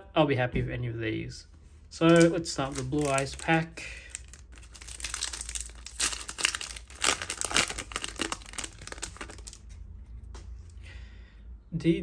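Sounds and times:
foil wrapper tearing and crinkling: 0:02.0 - 0:09.7.

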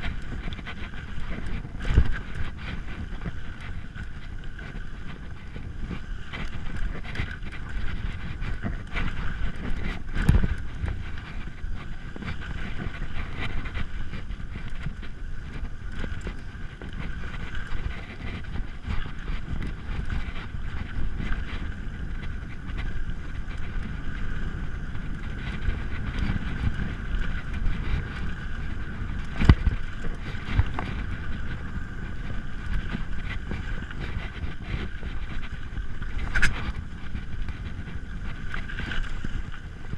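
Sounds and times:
bike tyres rumbling and rattling: 0:00.0 - 0:39.9
wind buffeting microphone: 0:00.0 - 0:39.9.

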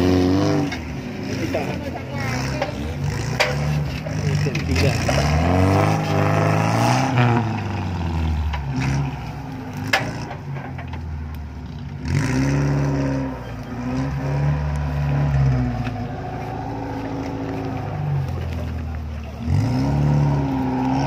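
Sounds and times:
suv engine revving: 0:00.0 - 0:21.0.

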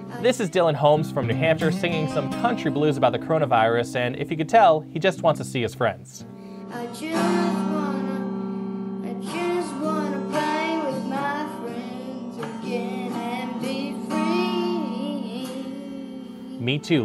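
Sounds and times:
boy singing: 0:00.0 - 0:01.0, 0:06.7 - 0:08.3, 0:09.0 - 0:17.0
strummed acoustic guitar: 0:00.0 - 0:17.0.

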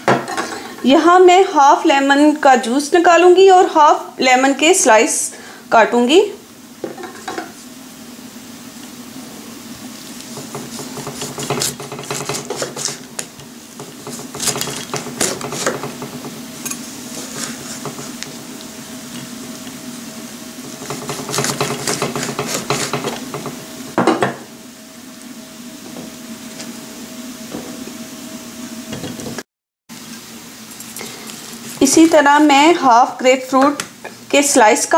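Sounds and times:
knife chopping on wooden board: 0:10.4 - 0:16.2, 0:20.8 - 0:24.4.

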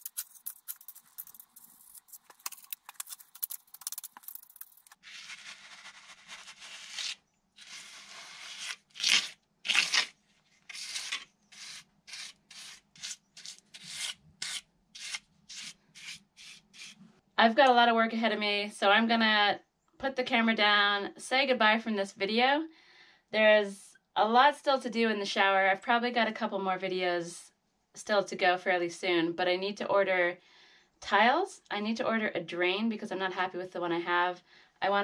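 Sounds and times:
trowel scraping render on a wall: 0:10.7 - 0:17.0.

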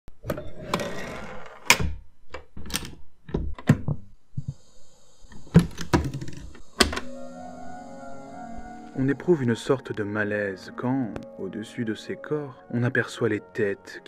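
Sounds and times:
faint high whine: 0:04.4 - 0:14.0.

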